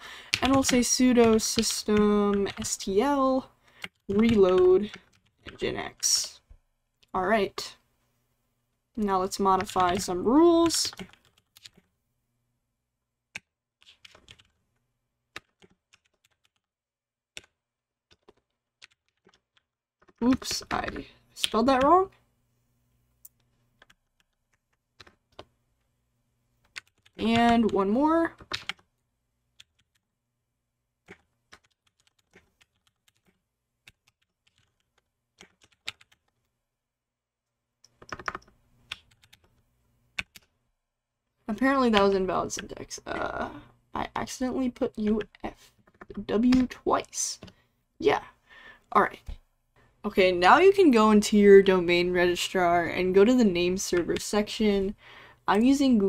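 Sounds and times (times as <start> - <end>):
computer keyboard typing: 0.3 - 2.9, 3.7 - 6.0, 9.0 - 11.9, 13.3 - 14.6, 15.3 - 16.7, 17.3 - 22.0, 23.8 - 25.5, 26.6 - 28.9, 29.6 - 30.1, 31.0 - 36.4, 37.8 - 39.6, 40.2 - 40.5, 44.6 - 46.8
faint keyboard keystrokes: 9.6 - 11.9, 37.8 - 39.6.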